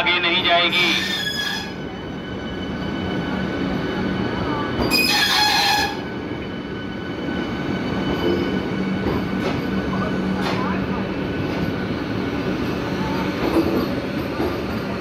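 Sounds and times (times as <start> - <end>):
train wheels rumbling on rails: 0.2 - 15.0.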